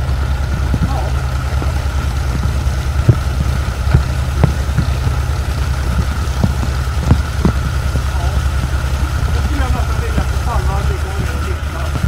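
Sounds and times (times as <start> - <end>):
diesel engine idling: 0.0 - 12.0
sharp knocks: 0.6 - 8.8.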